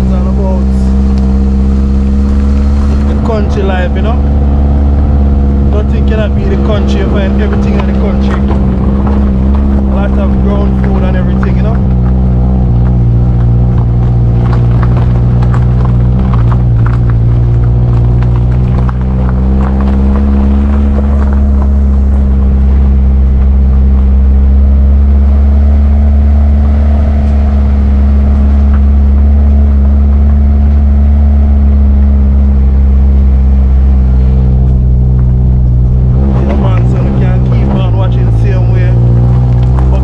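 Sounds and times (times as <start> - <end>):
vehicle engine droning: 0.0 - 40.0
knocks and rattles: 5.6 - 24.1.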